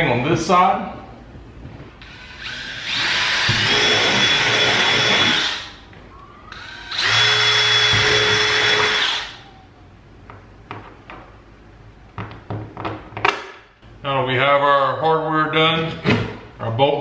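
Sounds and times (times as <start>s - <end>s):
cordless drill whining: 2.0s - 5.8s, 6.5s - 9.4s.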